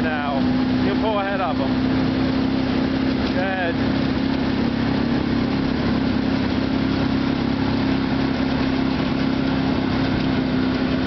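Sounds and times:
forage harvester hum: 0:00.0 - 0:11.0
tractor engine drone: 0:00.0 - 0:11.0.

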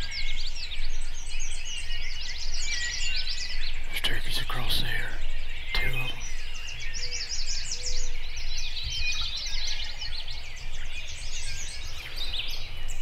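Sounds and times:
songbirds chirping and trilling: 0:00.0 - 0:13.0.

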